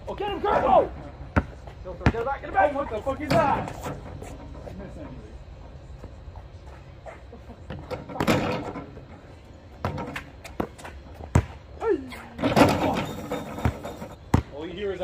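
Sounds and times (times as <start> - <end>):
players shouting: 0.0 - 1.2
basketball bouncing on asphalt: 1.3 - 2.4, 9.7 - 11.7, 13.1 - 14.8
basketball hitting backboard and rim: 7.8 - 8.9, 9.8 - 11.6, 12.4 - 14.5.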